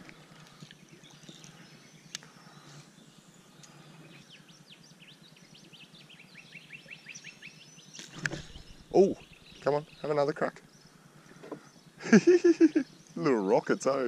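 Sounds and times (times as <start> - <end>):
bird chirping rapidly: 3.8 - 11.0, 11.6 - 14.0.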